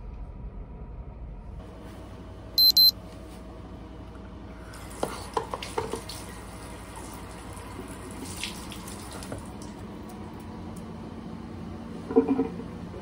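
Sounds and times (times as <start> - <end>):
tap water running: 4.7 - 10.2
water splashes: 5.0 - 9.7.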